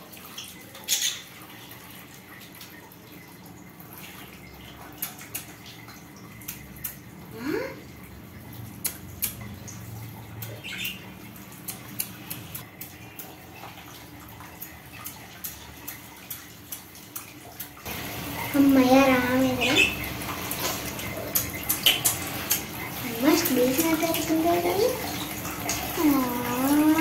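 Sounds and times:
bird chirp: 0:10.4 - 0:11.1.

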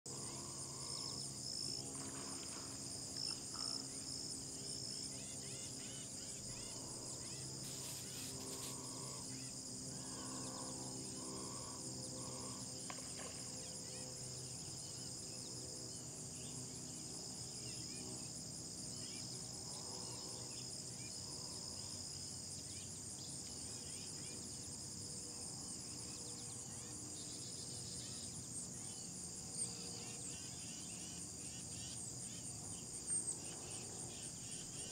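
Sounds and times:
insect chorus shrill drone: 0:00.1 - 0:34.9
faint scattered calls: 0:05.1 - 0:12.7.

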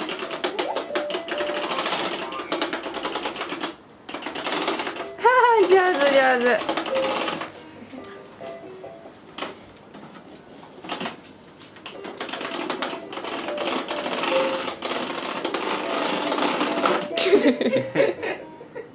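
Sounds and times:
baby walker rattling on wooden floor: 0:05.6 - 0:07.4.

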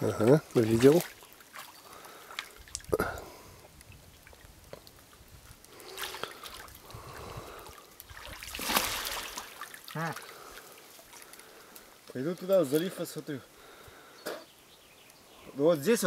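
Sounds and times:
water splashing and sloshing: 0:00.0 - 0:12.8.

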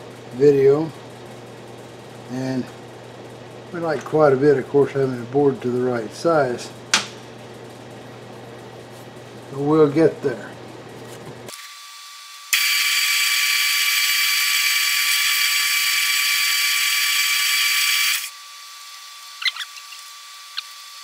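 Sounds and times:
metal lathe hiss: 0:12.5 - 0:18.3.

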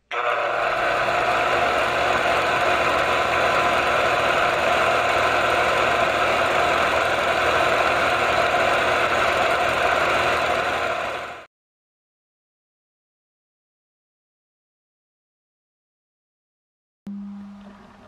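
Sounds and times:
film projector running: 0:00.0 - 0:11.5.

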